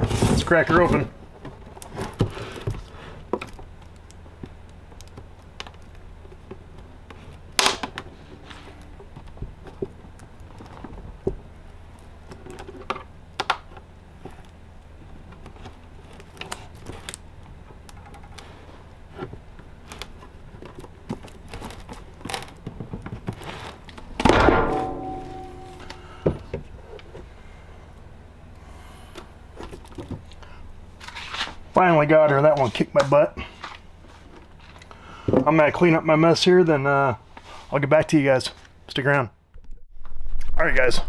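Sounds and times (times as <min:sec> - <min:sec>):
loud plastic crack: 0:07.5 - 0:08.0
sharp knock: 0:24.3 - 0:26.0.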